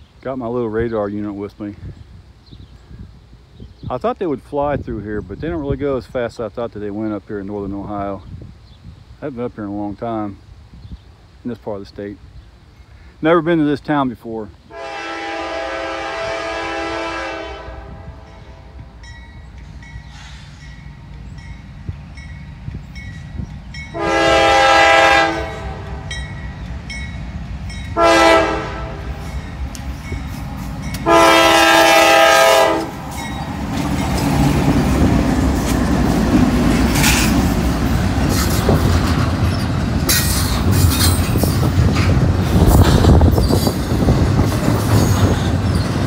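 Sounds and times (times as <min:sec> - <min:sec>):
train rumble and rail noise: 0:00.0 - 0:46.0
locomotive air horn blasts: 0:14.7 - 0:18.8, 0:23.9 - 0:26.2, 0:27.9 - 0:29.3, 0:31.0 - 0:33.0.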